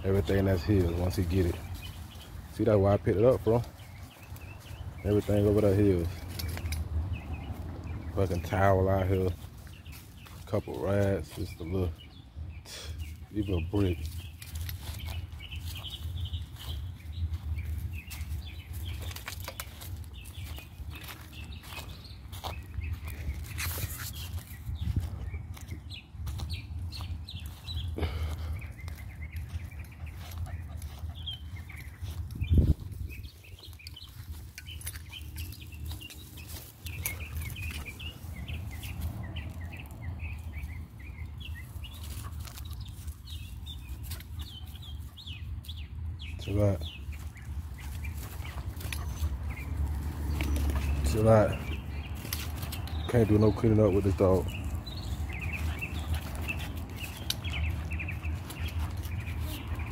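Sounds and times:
small birds chirping: 0:00.0 - 0:59.9
clicks and crunches in dry leaves: 0:13.4 - 0:44.8, 0:46.5 - 0:59.9
wind rumble on microphone: 0:22.8 - 0:27.5, 0:31.1 - 0:35.2.

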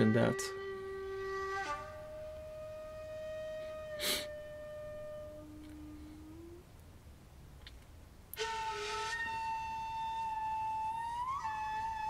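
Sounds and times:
flute-like woodwind music: 0:00.0 - 0:06.7, 0:08.4 - 0:12.0
breathy puff: 0:04.0 - 0:04.4.

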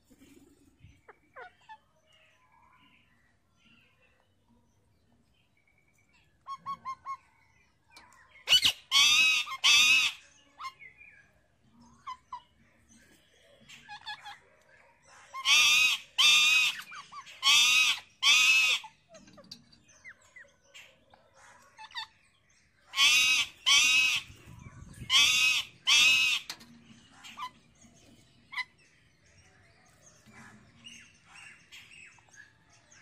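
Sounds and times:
parakeets calling: 0:08.5 - 0:10.9, 0:15.3 - 0:20.2, 0:22.9 - 0:27.8.

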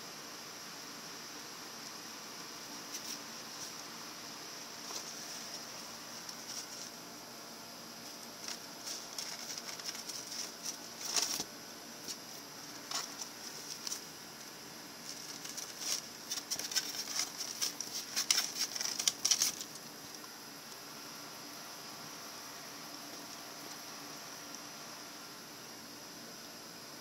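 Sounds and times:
hamster claws scratching styrofoam: 0:08.4 - 0:14.1, 0:15.0 - 0:19.8.

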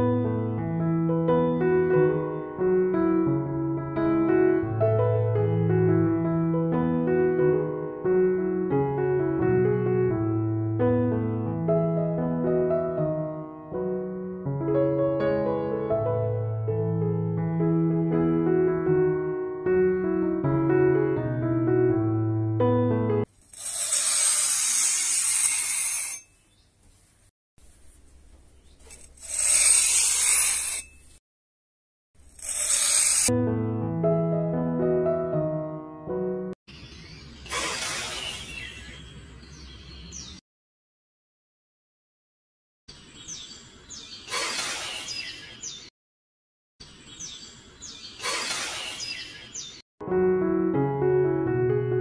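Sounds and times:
metal trowel scraping sand: 0:23.3 - 0:26.4, 0:28.8 - 0:31.2, 0:32.2 - 0:33.3
birds chirping: 0:36.7 - 0:40.4, 0:42.9 - 0:45.9, 0:46.8 - 0:49.8.

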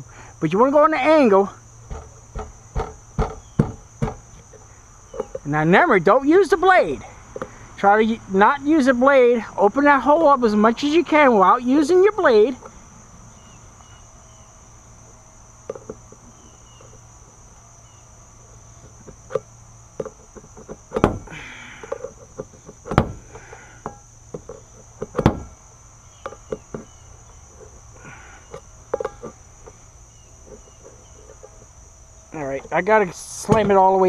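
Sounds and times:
insects chirring: 0:00.0 - 0:34.0
louder knocks: 0:01.9 - 0:04.2, 0:21.0 - 0:21.3.

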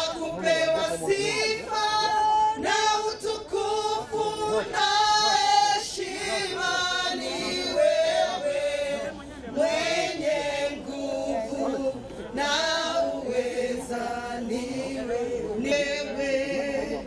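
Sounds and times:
woman singing into a microphone: 0:00.0 - 0:09.0
group singing a hymn: 0:00.0 - 0:17.0.

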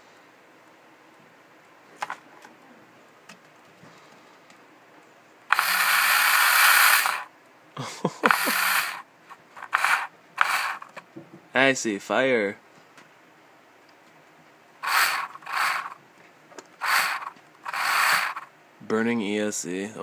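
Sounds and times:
bursts of harsh noise: 0:05.5 - 0:07.3, 0:08.3 - 0:11.0, 0:14.8 - 0:16.0, 0:16.8 - 0:18.5.

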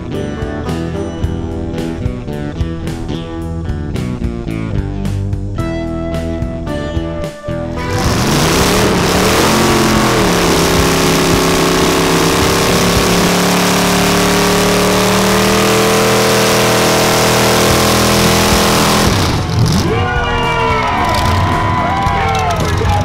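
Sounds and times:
car engine revving: 0:07.6 - 0:21.9.

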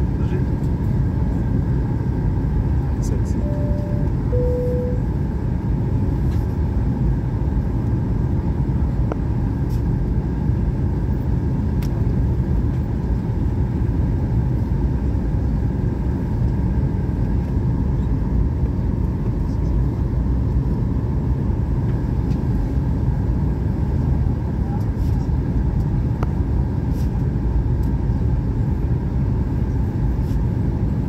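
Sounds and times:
jet engine rumble: 0:00.0 - 0:31.0
faint steady whine: 0:02.9 - 0:05.8.

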